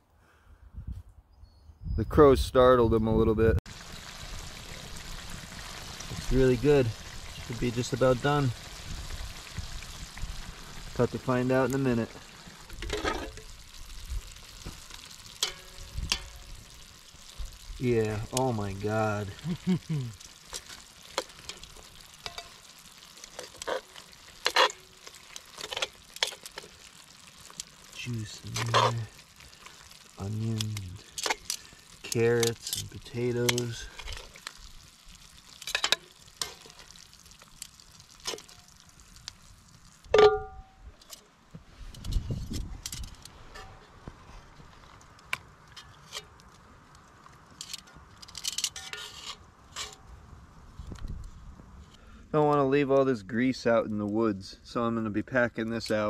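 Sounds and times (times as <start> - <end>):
metal tongs scraping cast iron pot: 12.7 - 13.5, 14.9 - 16.5, 20.5 - 26.7, 28.0 - 29.1, 30.5 - 34.4, 35.6 - 36.9, 42.9 - 43.9, 47.6 - 50.0
metal tongs clinking and scraping: 47.6 - 50.0.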